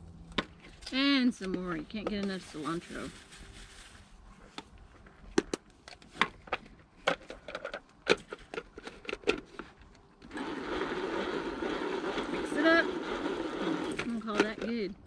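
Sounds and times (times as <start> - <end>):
plastic containers clicking and knocking: 5.3 - 10.0
food chopper whirring: 10.2 - 14.7.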